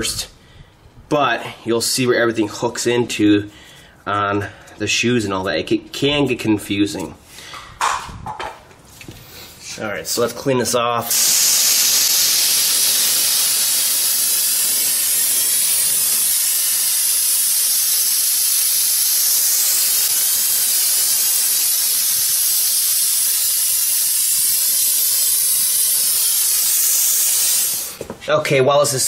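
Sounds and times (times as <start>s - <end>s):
aerosol spray hissing: 11.1s - 28.0s.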